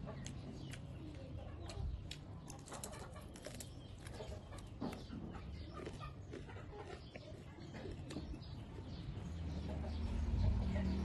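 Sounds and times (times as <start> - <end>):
chewing: 0.1 - 9.2
dried fish pulled apart crackling: 2.5 - 4.2.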